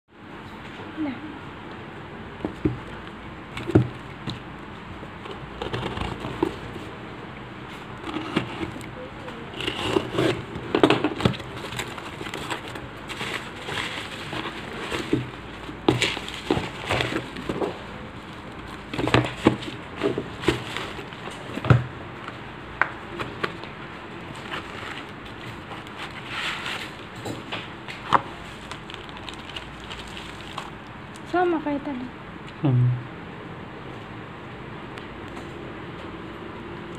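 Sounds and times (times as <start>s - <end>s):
cardboard rustling and knocking: 2.4s - 2.9s, 3.5s - 4.5s, 9.6s - 17.9s, 18.6s - 21.9s.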